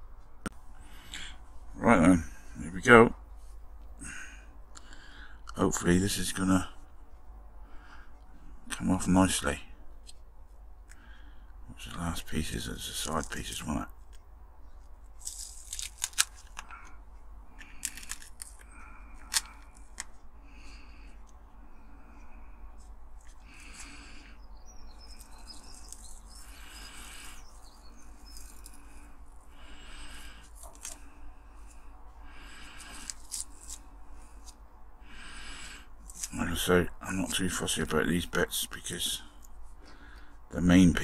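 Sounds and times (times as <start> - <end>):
rustling: 12.4 - 34.6, 35.3 - 36.5
masking tape peeling crackles: 15.0 - 20.2, 24.9 - 29.0, 30.1 - 31.2, 32.5 - 34.6
tape snapping: 15.2 - 17.0, 17.6 - 20.2.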